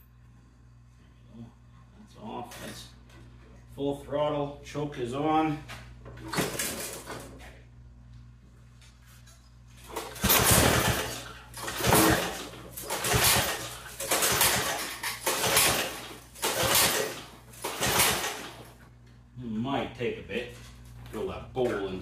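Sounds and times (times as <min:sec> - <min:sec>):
engine turning over: 0:09.8 - 0:18.8
recoil starter being pulled: 0:09.8 - 0:18.8.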